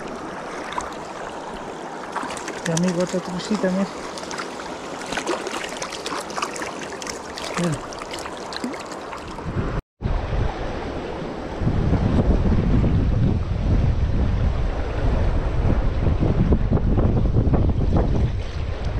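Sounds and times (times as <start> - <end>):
rushing river water: 0.0 - 9.7
fish splashing at surface: 2.0 - 9.5
wind rumbling on microphone: 9.2 - 18.9.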